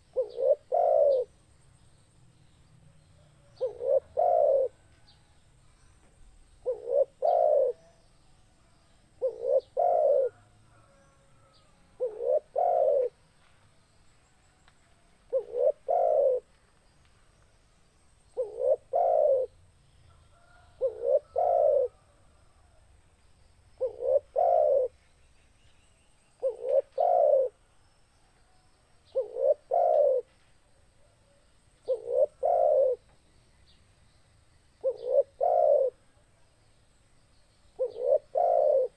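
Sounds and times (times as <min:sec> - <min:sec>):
dove cooing: 0:00.0 - 0:01.3, 0:03.4 - 0:04.8, 0:06.6 - 0:08.0, 0:09.2 - 0:13.2, 0:15.3 - 0:16.5, 0:18.4 - 0:19.6, 0:20.4 - 0:22.1, 0:23.8 - 0:25.0, 0:26.4 - 0:27.6, 0:29.1 - 0:30.3, 0:31.0 - 0:33.0, 0:34.8 - 0:36.0, 0:37.8 - 0:38.9.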